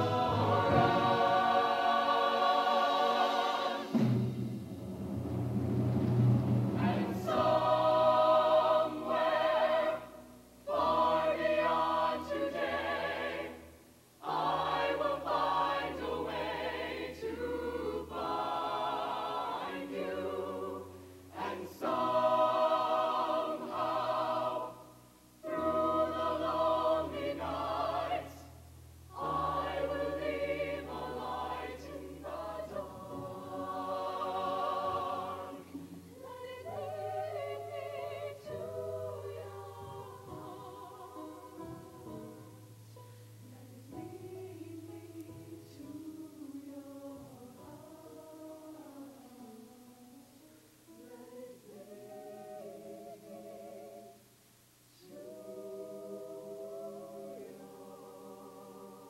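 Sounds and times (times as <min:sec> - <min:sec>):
mixed choir singing in harmony: 0:00.0 - 0:42.6, 0:43.4 - 0:50.2, 0:50.9 - 0:54.3, 0:54.9 - 0:59.0.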